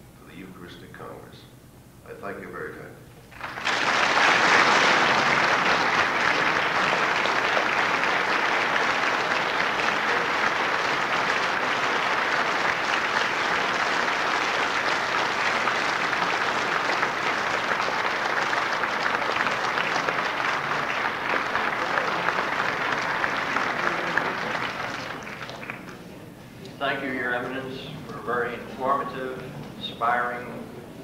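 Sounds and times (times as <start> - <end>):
large audience applauding: 3.2 - 26.3.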